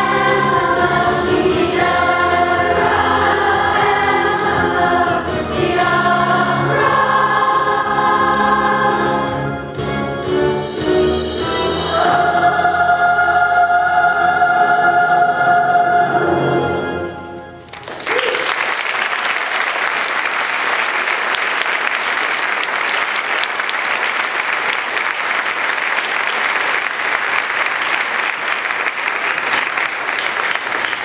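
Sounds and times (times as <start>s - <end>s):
audience applauding: 17.7s - 31.0s.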